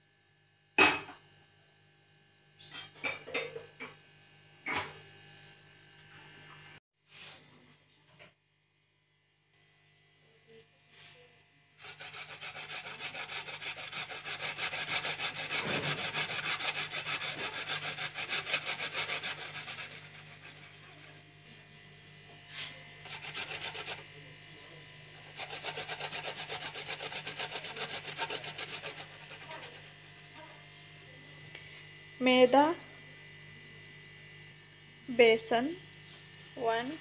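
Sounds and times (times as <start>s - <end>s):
food rasping on metal grater: 11.8s - 21.1s, 22.5s - 24.1s, 25.3s - 30.0s.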